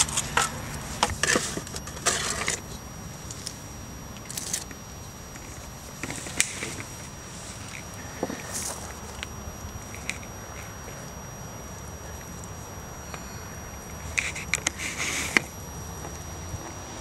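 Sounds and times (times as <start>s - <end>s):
gravel scraping and clinking: 0.0s - 3.6s.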